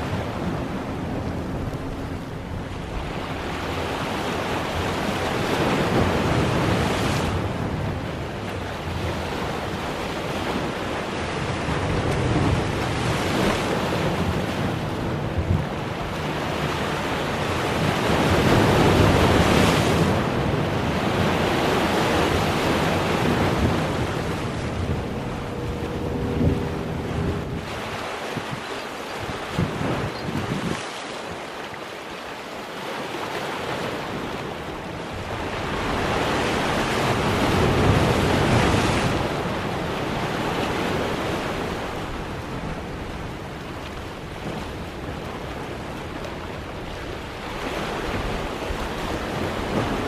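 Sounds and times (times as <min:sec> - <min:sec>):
wind buffeting microphone: 0:00.0 - 0:30.9
waves breaking over boulders: 0:00.0 - 0:50.0.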